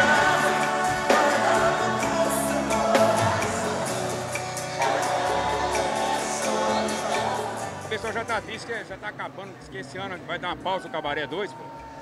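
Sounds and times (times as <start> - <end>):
person singing: 0.0 - 7.9
live band playing: 0.0 - 8.7.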